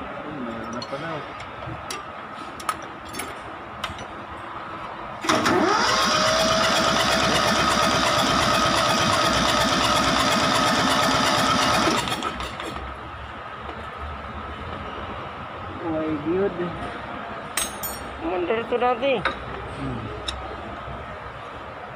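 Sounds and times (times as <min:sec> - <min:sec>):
starter motor whine: 0:05.2 - 0:12.4
diesel engine cranking: 0:05.2 - 0:12.9.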